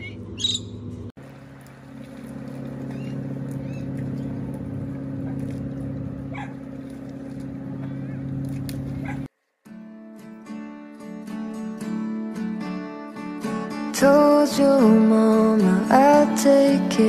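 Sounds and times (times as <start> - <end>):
motor engine humming: 0.0 - 9.3.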